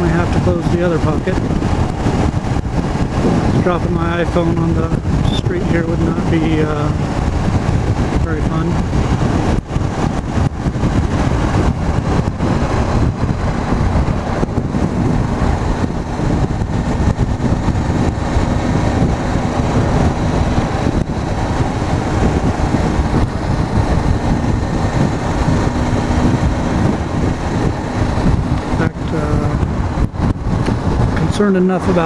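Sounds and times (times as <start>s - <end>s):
motorcycle engine cruising: 0.0s - 32.0s
wind rush on microphone: 0.0s - 32.0s.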